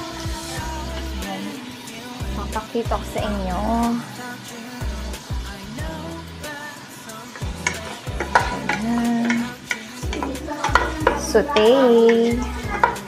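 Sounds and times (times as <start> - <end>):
vegetables sizzling in a pot: 0.0 - 13.0
spatula scraping a metal pot: 7.4 - 13.0.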